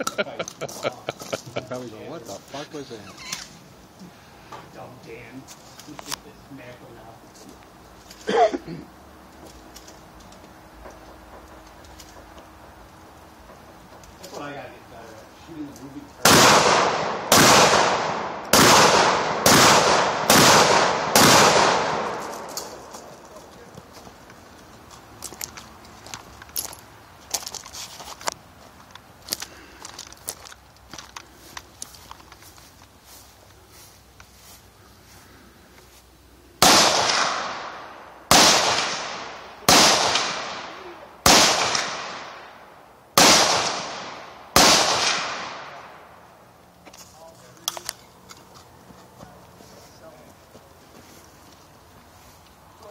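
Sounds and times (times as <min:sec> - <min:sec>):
gunshots echoing: 0:16.2 - 0:22.9, 0:36.6 - 0:42.6, 0:43.2 - 0:46.0.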